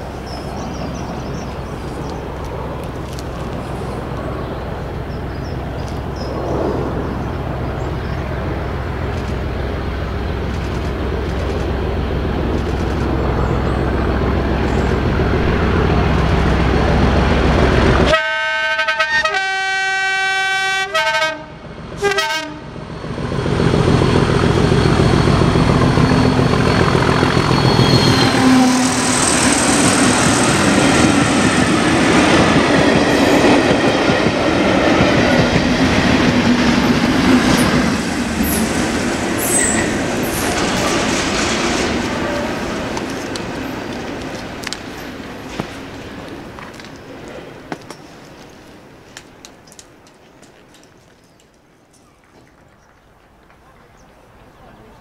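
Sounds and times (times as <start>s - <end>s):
diesel locomotive engine: 0.0s - 55.0s
train passing rumble: 0.0s - 55.0s
train horn: 18.0s - 22.7s, 27.8s - 29.4s.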